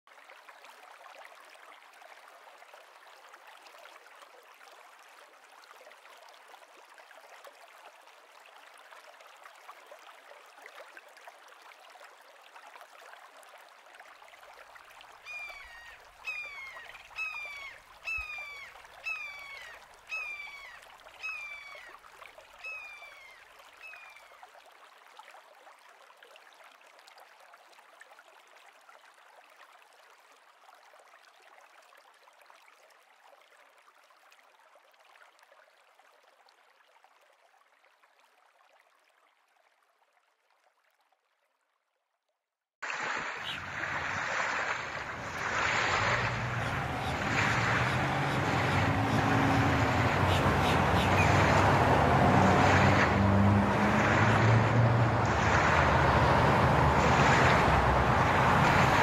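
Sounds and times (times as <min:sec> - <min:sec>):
bird calling: 0:15.2 - 0:21.9, 0:22.6 - 0:24.3, 0:43.4 - 0:43.8, 0:46.4 - 0:51.8
flowing water hiss: 0:42.8 - 0:59.0.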